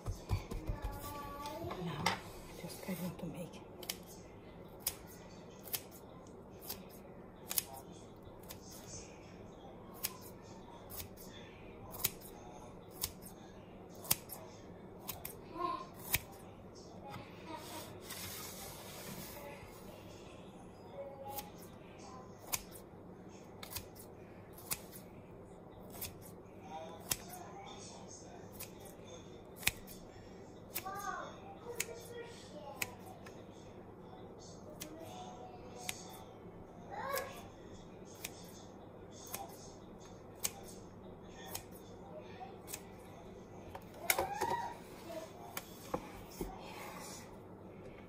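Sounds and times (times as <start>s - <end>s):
scissors snipping dough: 3.8s - 4.2s, 4.8s - 8.9s, 9.9s - 11.3s, 11.9s - 13.4s, 14.0s - 14.4s, 15.0s - 16.4s, 22.4s - 22.8s, 23.6s - 25.1s, 25.9s - 26.4s, 27.0s - 27.5s, 28.5s - 30.0s, 30.7s - 31.1s, 31.7s - 32.2s, 32.8s - 33.4s, 35.8s - 36.2s, 38.2s - 38.6s, 39.2s - 39.6s, 40.4s - 40.8s, 41.4s - 41.8s, 42.6s - 42.9s
scissors snipping clicks: 7.5s - 7.8s.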